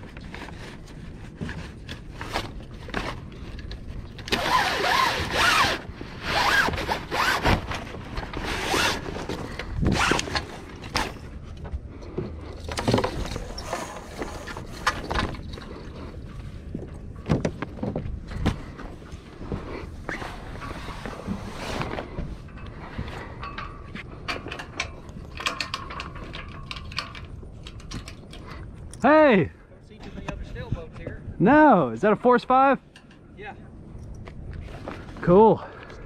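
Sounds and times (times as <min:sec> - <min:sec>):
sail cloth rustling: 0:00.0 - 0:11.6, 0:17.7 - 0:23.4.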